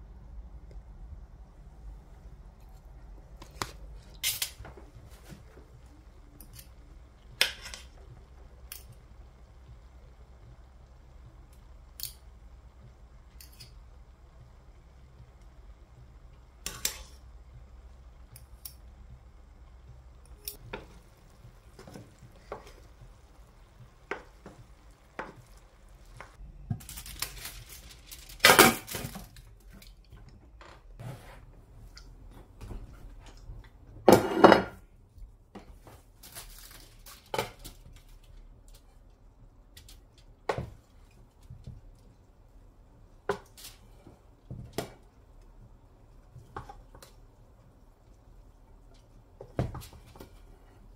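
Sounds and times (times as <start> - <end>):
cutlery scraping metal pot: 34.1 - 34.8.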